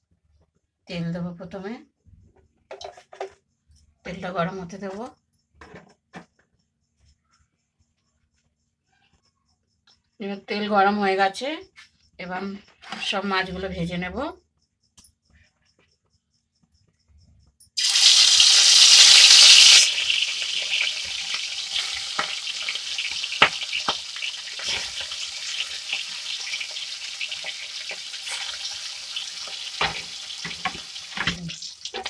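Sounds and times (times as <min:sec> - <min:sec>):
fish sizzling in hot oil: 0:17.8 - 0:32.0
oil pops and crackles: 0:19.8 - 0:26.7.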